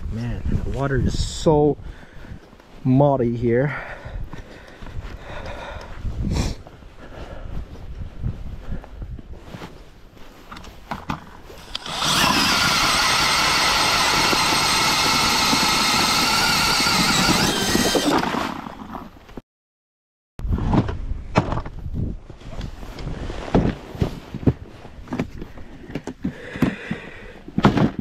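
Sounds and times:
drill motor whine: 0:11.6 - 0:18.9.

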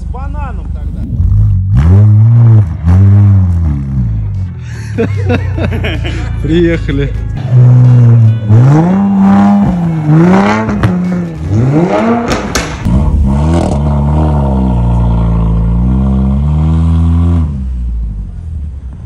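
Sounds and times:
deep exhaust drone: 0:00.8 - 0:18.9
car exhaust revving with pops: 0:09.4 - 0:17.6.

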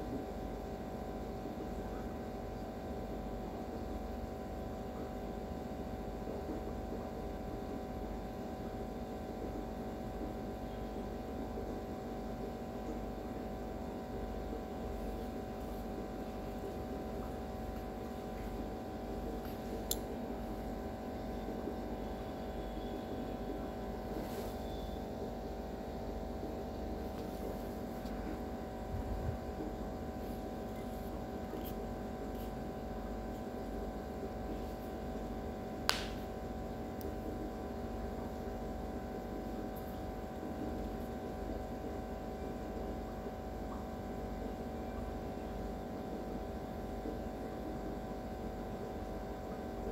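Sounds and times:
steady low hum: 0:00.0 - 0:49.9.

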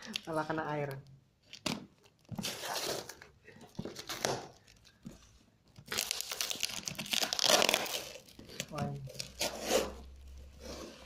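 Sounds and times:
tape crinkling: 0:00.0 - 0:11.0
scissors cutting packing tape: 0:05.9 - 0:10.1.

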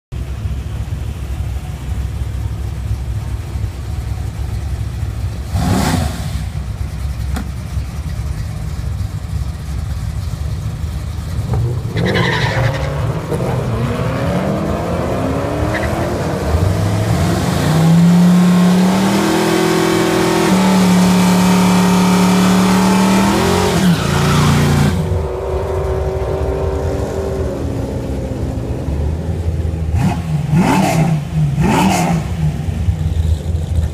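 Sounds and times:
race car engines revving: 0:00.2 - 0:33.9.

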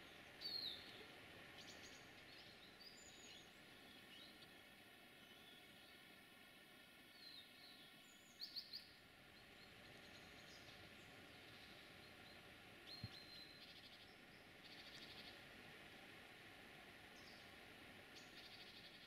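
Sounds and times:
bird chirps and trills: 0:00.0 - 0:01.0, 0:07.1 - 0:15.4
outdoor background hiss: 0:00.0 - 0:19.0.

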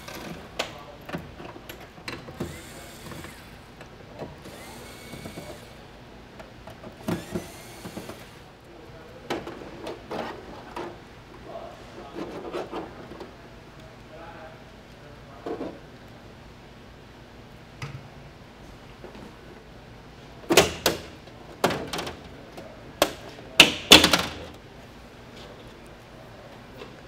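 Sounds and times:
electric screwdriver whirring: 0:02.4 - 0:03.6, 0:04.5 - 0:05.8, 0:07.0 - 0:08.4.

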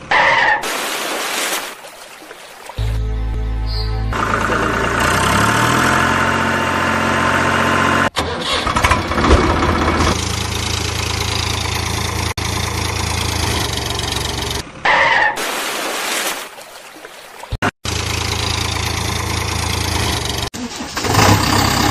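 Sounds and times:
vehicle engine humming: 0:02.8 - 0:14.9, 0:17.8 - 0:21.9.

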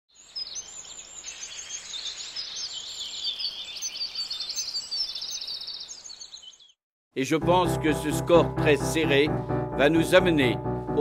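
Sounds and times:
small birds chirping and singing: 0:00.1 - 0:06.8
bird trill: 0:00.2 - 0:06.8.

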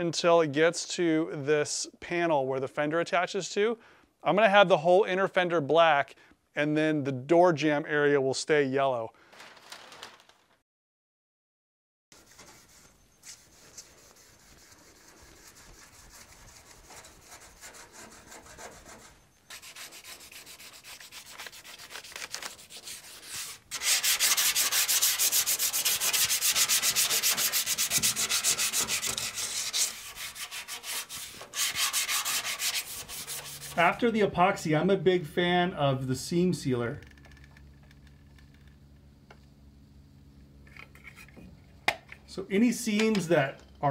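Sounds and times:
hand sanding metal panel: 0:12.1 - 0:34.5.

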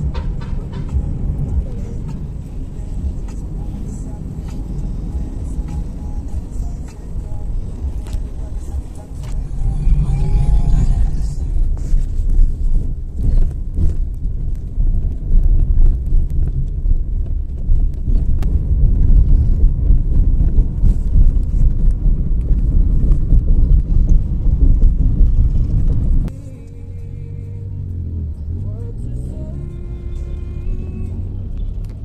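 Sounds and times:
car road noise rumble: 0:00.0 - 0:32.0
wind buffeting microphone: 0:09.3 - 0:26.3.

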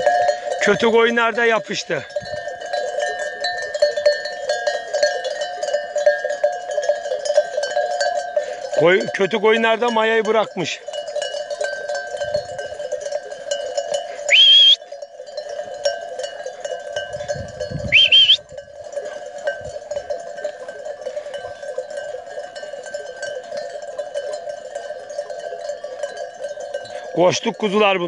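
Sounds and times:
sheep bells jangling: 0:00.0 - 0:28.0
high-pitched calls: 0:14.3 - 0:14.8, 0:17.9 - 0:18.4.

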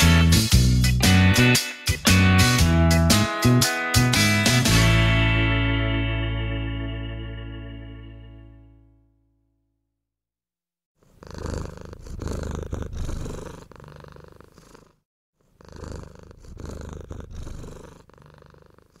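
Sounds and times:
cat purring: 0:11.0 - 0:19.0.

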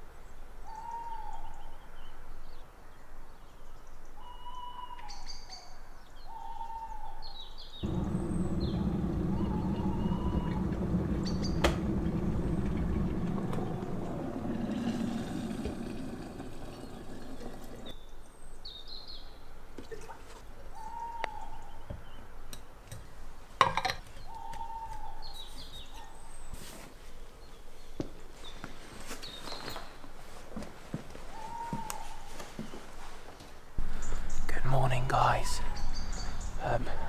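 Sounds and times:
birds chirping: 0:06.2 - 0:18.2, 0:33.8 - 0:37.0
electric kettle rumbling: 0:07.8 - 0:17.9
water pouring into a flask: 0:14.5 - 0:17.9.

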